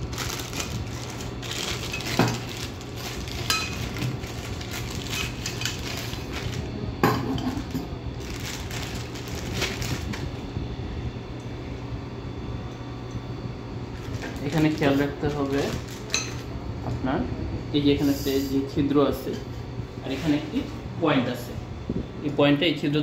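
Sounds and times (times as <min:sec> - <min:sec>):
plastic wrapping crinkling: 0:00.0 - 0:06.8, 0:07.6 - 0:10.4, 0:14.0 - 0:16.5.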